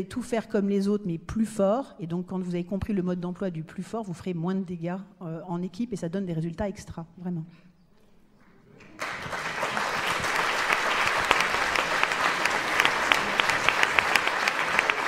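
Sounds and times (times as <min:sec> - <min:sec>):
audience applauding: 0:08.8 - 0:15.0.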